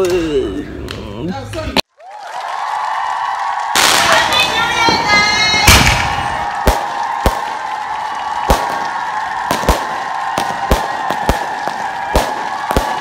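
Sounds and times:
fireworks bangs: 0:03.7 - 0:13.0.

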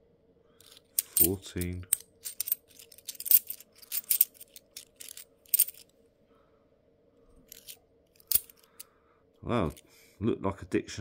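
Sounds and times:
coins clinking: 0:00.6 - 0:05.9, 0:07.5 - 0:08.8.

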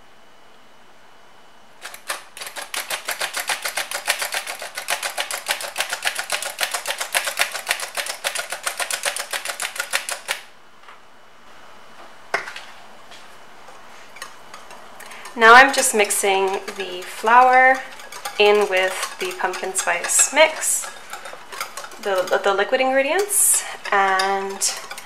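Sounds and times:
flour sifter metallic clicking: 0:01.8 - 0:10.5, 0:14.2 - 0:25.0.

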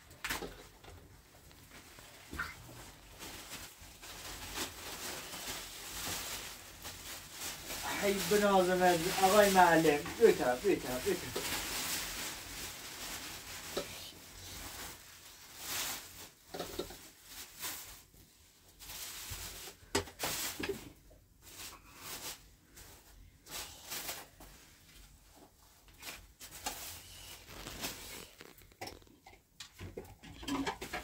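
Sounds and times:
plastic cloth rustling: 0:00.0 - 0:31.0.

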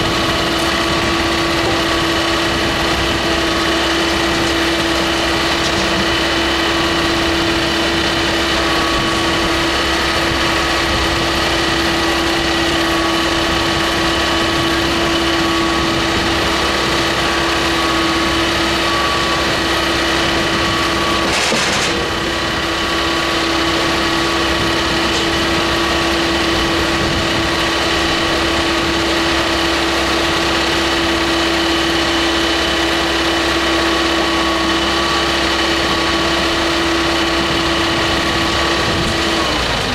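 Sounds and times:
constant droning note: 0:00.0 - 0:39.9
firewood processor engine running: 0:00.0 - 0:39.9.

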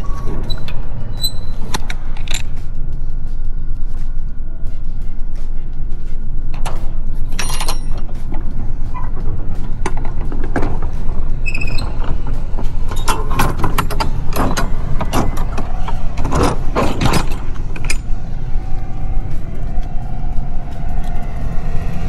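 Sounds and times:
steady low rumble: 0:00.0 - 0:22.0
metallic clanks and knocks: 0:06.6 - 0:18.1.

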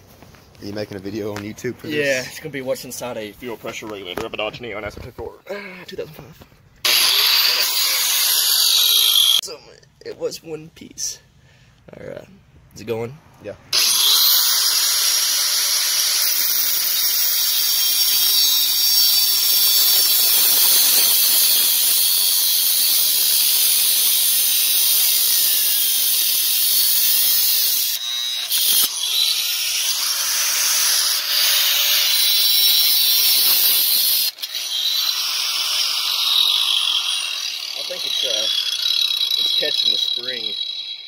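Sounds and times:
angle grinder cutting metal: 0:06.8 - 0:09.4, 0:13.7 - 0:41.0.

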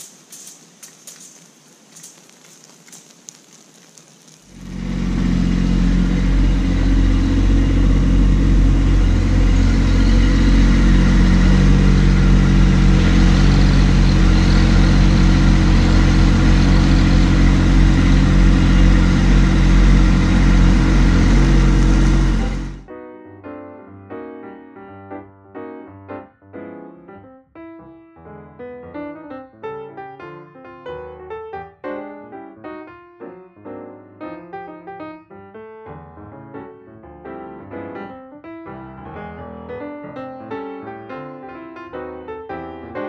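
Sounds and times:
tractor diesel engine running: 0:04.5 - 0:22.9.

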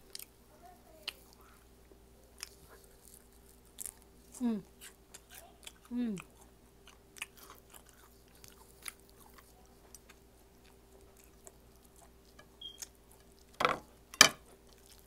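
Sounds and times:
chewing crispy fish: 0:00.0 - 0:13.6, 0:14.4 - 0:15.0.

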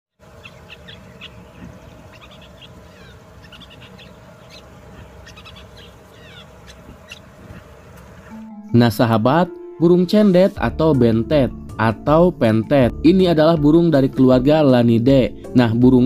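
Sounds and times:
low background rumble: 0:00.2 - 0:08.4
bird singing chirps: 0:00.2 - 0:08.5.

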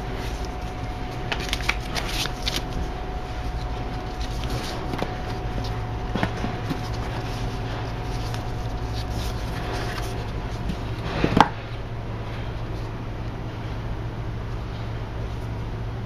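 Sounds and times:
cardboard and foam rustling: 0:00.0 - 0:11.7
steady low hum: 0:00.0 - 0:16.0.

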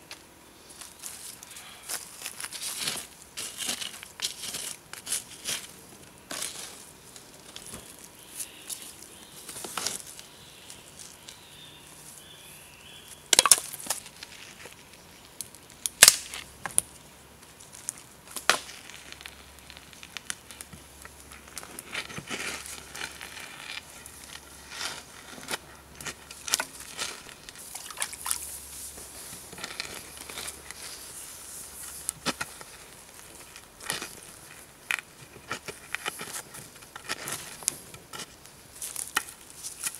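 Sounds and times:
charcoal fire crackling: 0:00.0 - 0:39.9.

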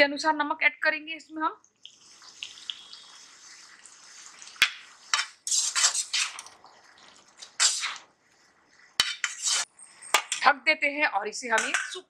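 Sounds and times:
spoon scraping metal pan: 0:02.2 - 0:10.5, 0:11.4 - 0:12.0
metal spoon knocking on pan: 0:11.6 - 0:12.0.

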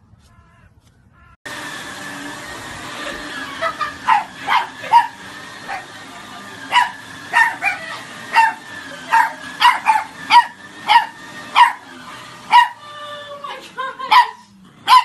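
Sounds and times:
puppy yapping: 0:03.7 - 0:05.9, 0:06.7 - 0:11.9, 0:12.5 - 0:12.8, 0:14.1 - 0:15.0.

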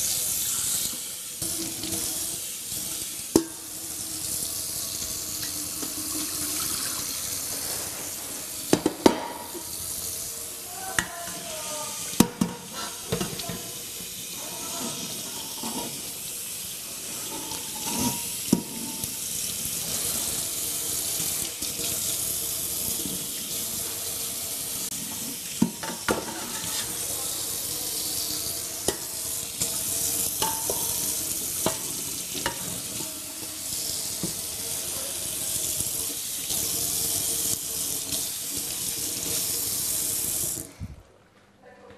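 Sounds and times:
dishes clinking and knocking: 0:08.7 - 0:09.7, 0:12.2 - 0:13.7, 0:25.6 - 0:27.0, 0:30.4 - 0:32.9
tap running into sink: 0:08.7 - 0:09.8, 0:25.6 - 0:27.0.

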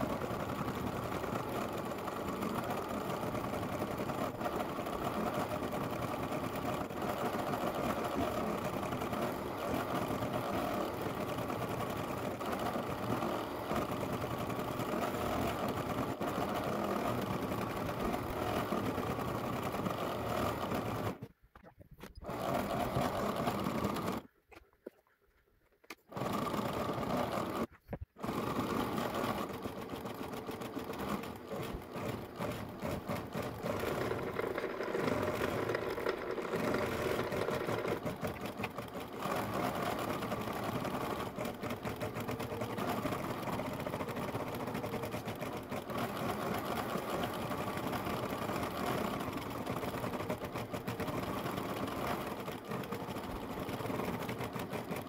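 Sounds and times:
embroidery machine stitching: 0:00.0 - 0:21.3, 0:22.2 - 0:24.3, 0:26.1 - 0:55.0.

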